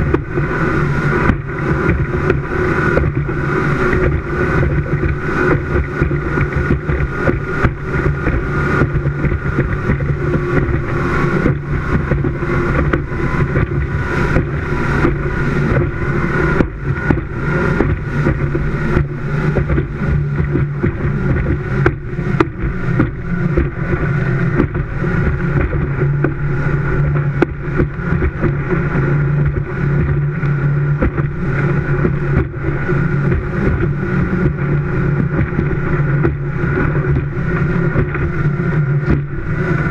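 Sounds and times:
hull thumping on waves: 0:00.0 - 0:39.9
rush of wind and water: 0:00.0 - 0:39.9
speedboat engine droning: 0:00.0 - 0:39.9.

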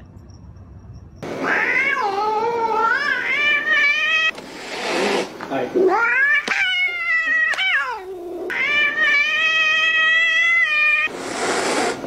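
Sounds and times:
cat yowling: 0:01.4 - 0:04.3, 0:05.8 - 0:11.1
cat hissing: 0:01.4 - 0:12.0.

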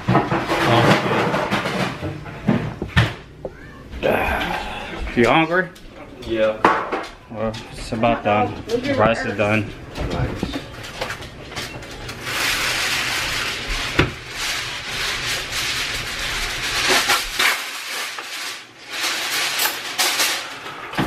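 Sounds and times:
kitchen drawer opening: 0:00.0 - 0:03.2
rubbing and rustling: 0:09.8 - 0:20.8.

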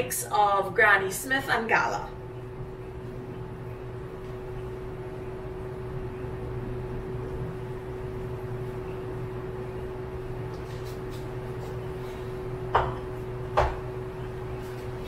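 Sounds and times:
low kitchen hum: 0:00.0 - 0:15.0
knocks on kitchen counter: 0:12.7 - 0:13.8.

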